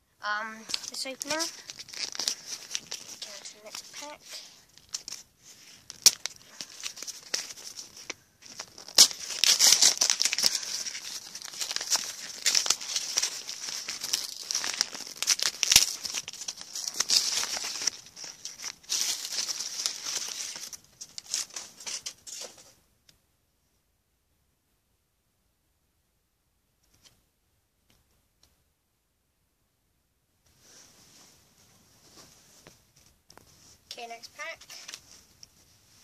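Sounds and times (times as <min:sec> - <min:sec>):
card pack wrapper torn and crinkled: 0:00.6 - 0:22.6, 0:34.4 - 0:35.0.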